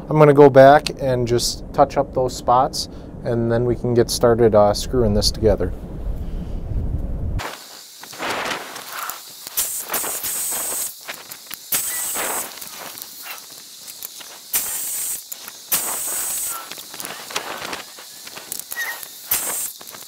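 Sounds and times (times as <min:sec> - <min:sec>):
hissing scrapes: 0:07.4 - 0:20.0.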